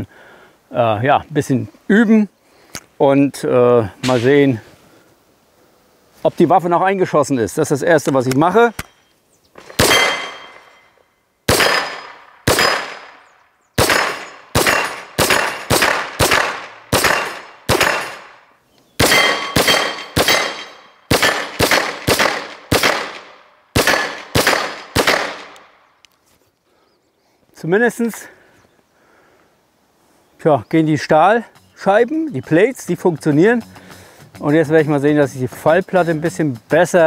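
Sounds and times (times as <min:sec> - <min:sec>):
carbine gunshots: 0:09.7 - 0:10.7, 0:11.5 - 0:18.4, 0:19.0 - 0:25.8
bullets ringing on steel targets: 0:09.7 - 0:13.2, 0:13.8 - 0:18.4, 0:19.0 - 0:23.2, 0:23.8 - 0:25.5.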